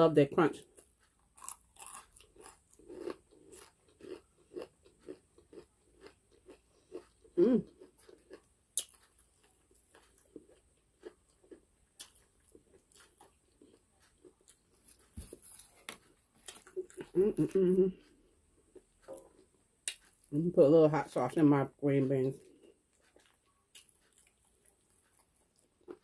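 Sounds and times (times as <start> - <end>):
crunching fried chicken: 0.8 - 17.4, 22.9 - 26.0.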